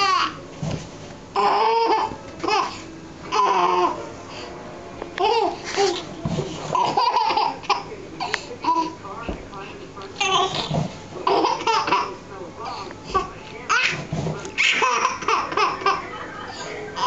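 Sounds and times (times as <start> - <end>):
baby laughing: 0.0 - 0.4, 1.4 - 4.0, 5.2 - 6.1, 6.7 - 9.0, 10.2 - 14.0, 14.6 - 17.0.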